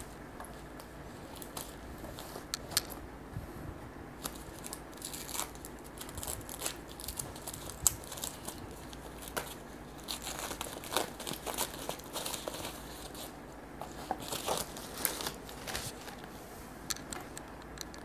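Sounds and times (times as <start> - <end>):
plastic packaging crinkling: 4.2 - 16.3.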